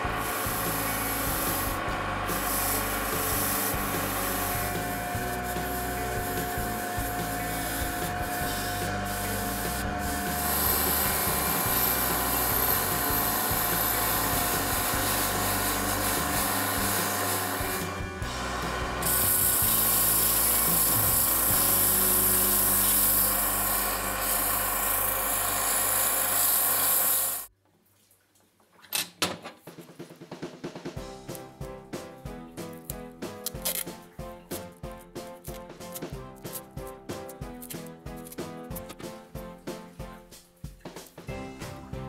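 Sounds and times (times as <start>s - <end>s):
drill press motor humming: 0.0s - 27.5s
metal rubbing on buffing wheel: 0.1s - 27.5s.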